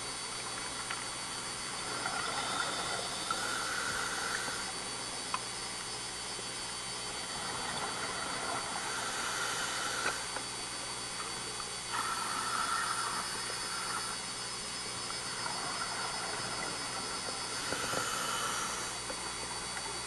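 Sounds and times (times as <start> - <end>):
underwater hiss: 1.8 - 4.8, 7.2 - 10.4, 11.9 - 14.4, 15.2 - 19.1.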